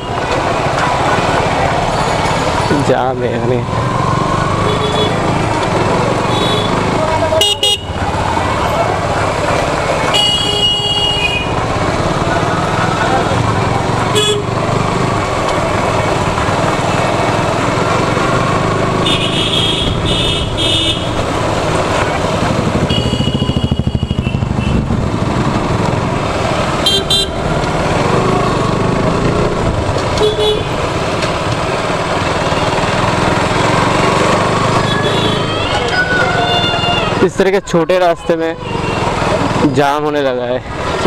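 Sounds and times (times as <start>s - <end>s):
motorcycle engine at low speed: 0.0s - 35.4s
vehicle horns honking: 4.6s - 5.3s, 6.2s - 8.1s, 10.0s - 11.6s, 14.1s - 14.6s, 19.0s - 21.2s, 22.8s - 24.9s, 26.7s - 27.5s, 30.1s - 30.9s, 34.8s - 35.6s, 38.3s - 39.2s.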